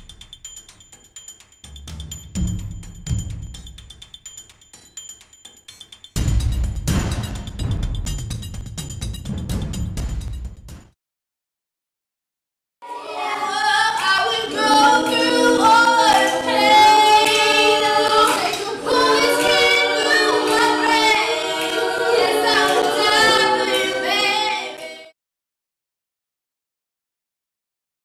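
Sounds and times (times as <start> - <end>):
women singing a cappella: 12.8 - 25.1.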